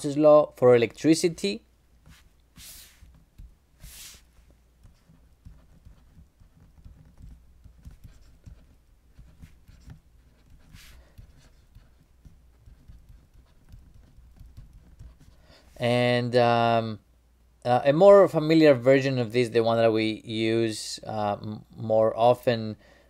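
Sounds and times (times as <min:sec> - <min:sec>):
short soft hisses: 0:02.1 - 0:03.1, 0:03.8 - 0:04.4
stylus tapping on tablet: 0:04.8 - 0:15.3.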